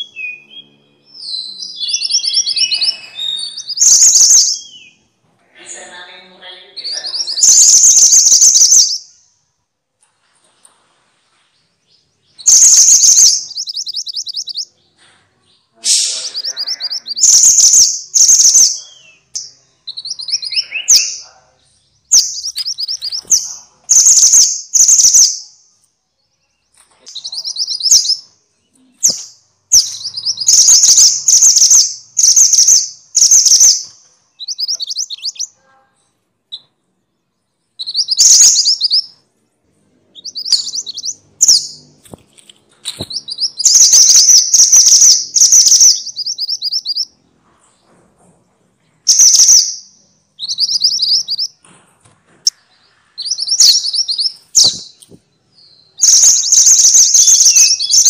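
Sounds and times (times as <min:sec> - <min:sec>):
minivet bird trilling calls: 0:00.0 - 0:05.0, 0:07.0 - 0:09.1, 0:12.4 - 0:14.7, 0:16.0 - 0:19.1, 0:22.1 - 0:25.4, 0:29.7 - 0:33.8, 0:34.4 - 0:35.6, 0:37.8 - 0:39.1, 0:40.2 - 0:41.8, 0:43.0 - 0:47.1, 0:56.0 - 0:58.0.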